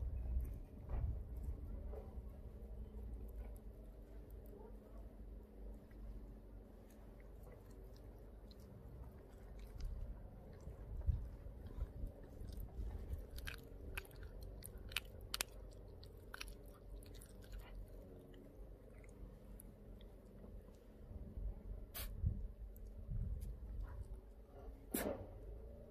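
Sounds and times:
dog chewing with bone crunches: 0:05.6 - 0:20.9.

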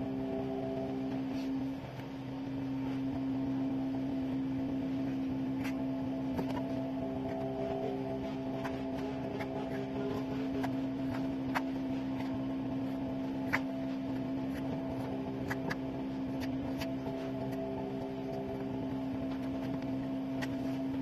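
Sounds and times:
steady mechanical hum: 0:00.0 - 0:21.0.

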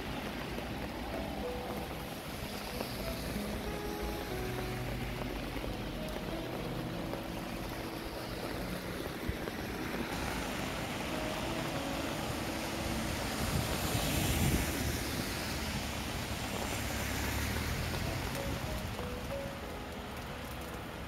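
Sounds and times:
rain falling: 0:00.0 - 0:21.0
soft music notes: 0:00.4 - 0:14.2, 0:17.7 - 0:21.0
wind buffeting microphone: 0:05.2 - 0:16.9.

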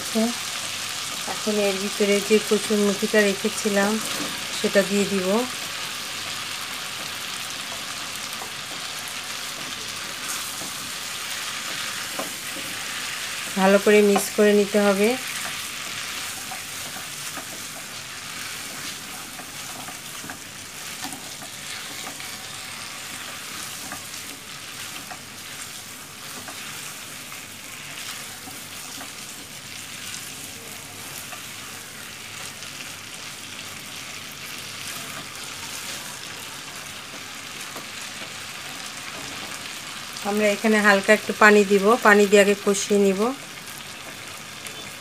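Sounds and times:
food sizzling in oil: 0:00.0 - 0:45.0
spatula scraping and tapping: 0:15.4 - 0:22.4, 0:23.3 - 0:25.3.

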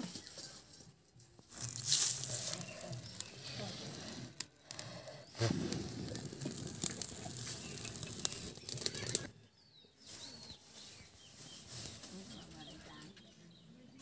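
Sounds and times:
wood fire crackling: 0:00.0 - 0:09.4
birds chirping: 0:01.5 - 0:14.0.

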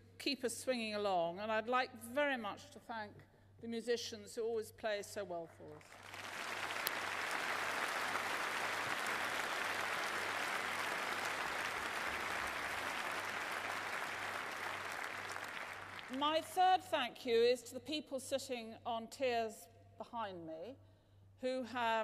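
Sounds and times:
audience applauding: 0:05.9 - 0:16.2.

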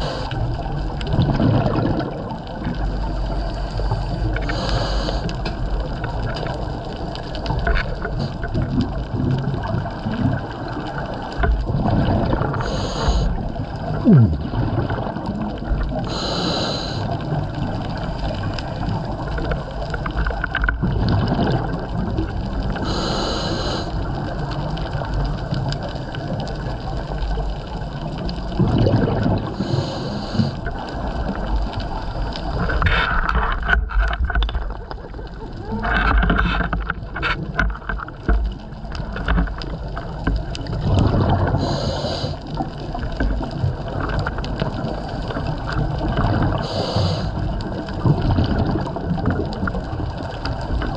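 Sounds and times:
regulator inhale hiss: 0:00.0 - 0:00.5, 0:03.4 - 0:05.5, 0:12.6 - 0:13.4, 0:16.0 - 0:17.2, 0:22.8 - 0:24.1, 0:29.5 - 0:30.7, 0:41.5 - 0:42.6, 0:46.5 - 0:47.5
exhaled bubbles gurgling: 0:00.0 - 0:50.9
low underwater rumble: 0:00.0 - 0:50.9.

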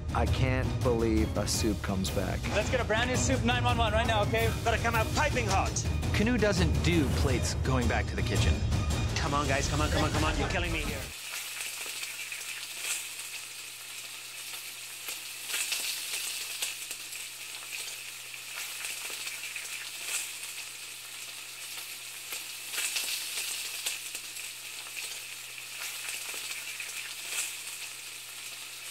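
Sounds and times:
food sizzling in a pan: 0:09.2 - 0:28.9.

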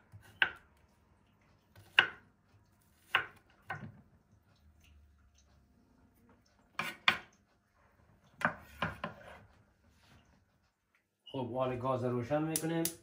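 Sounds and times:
knife chopping on wooden board: 0:01.7 - 0:02.2, 0:03.0 - 0:03.9, 0:06.8 - 0:07.3, 0:08.4 - 0:09.4.

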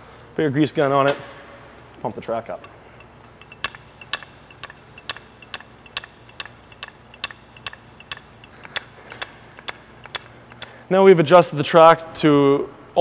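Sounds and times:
grease gun pumping clicks: 0:02.6 - 0:10.8.

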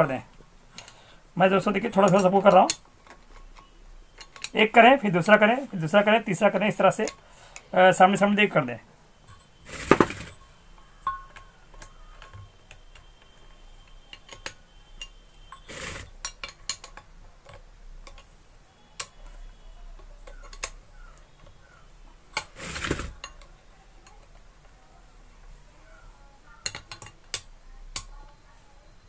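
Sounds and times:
spanner clinking on metal bolts: 0:01.7 - 0:04.7, 0:14.1 - 0:18.4, 0:26.6 - 0:28.1
short metal scraping: 0:09.4 - 0:10.5, 0:15.5 - 0:16.2.

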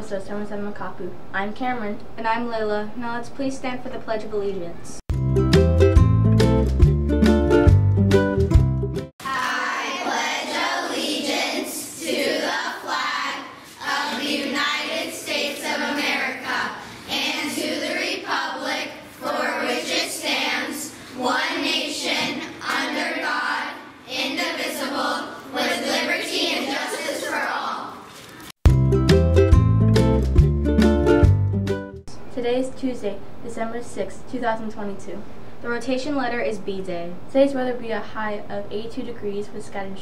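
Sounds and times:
ukulele-like music: 0:05.1 - 0:09.1, 0:28.7 - 0:31.8
children reciting together: 0:09.2 - 0:28.1.

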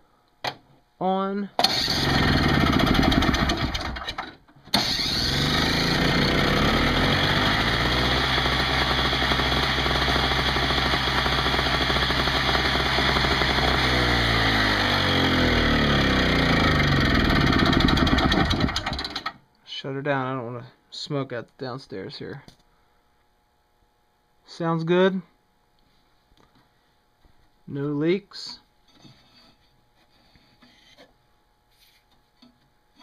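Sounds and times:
snowblower engine running: 0:01.6 - 0:04.2, 0:04.8 - 0:19.3.

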